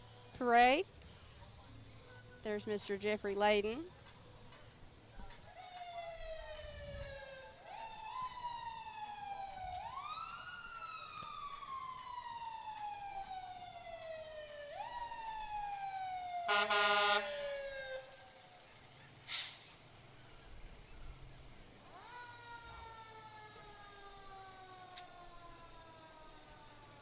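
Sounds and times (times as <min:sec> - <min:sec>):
siren wailing: 0:05.6 - 0:18.6, 0:21.9 - 0:27.0
loud horn blast: 0:16.5 - 0:17.5.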